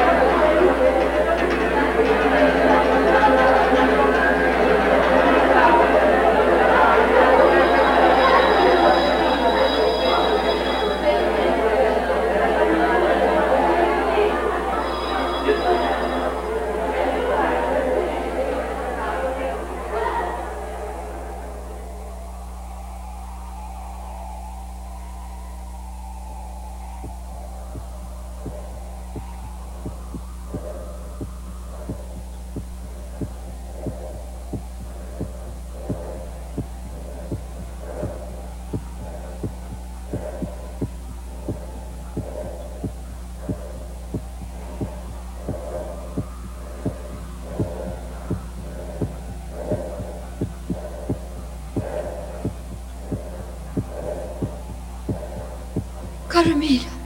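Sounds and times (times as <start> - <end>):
faint swelling tones: 0.0 - 57.0
low hum: 0.0 - 57.0
slow thumping heartbeat pulse: 26.5 - 57.0.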